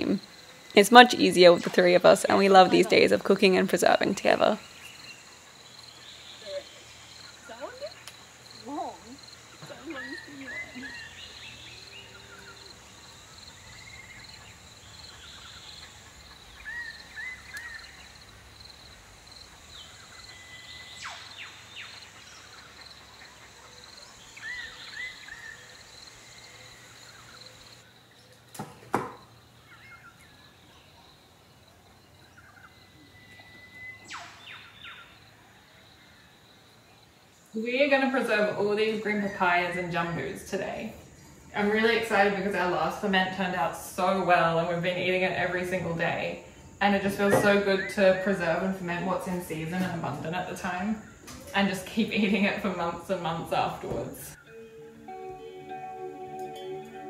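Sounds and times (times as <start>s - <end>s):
insect drone: 0.0s - 53.7s
birds chirping: 0.0s - 57.0s
sharp knocks: 28.6s - 29.2s.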